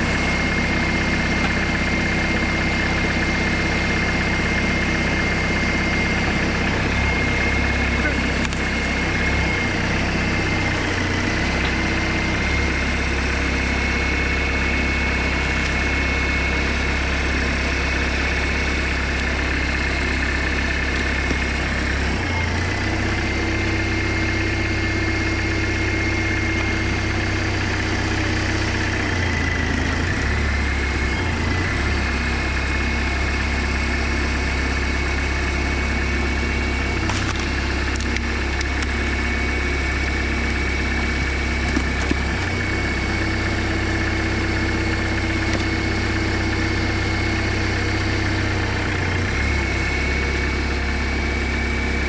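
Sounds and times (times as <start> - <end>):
high steady whine: 0.0 - 28.5
tractor engine running: 0.0 - 52.0
wood splitting crack: 37.0 - 39.0, 41.6 - 42.5, 45.3 - 46.0.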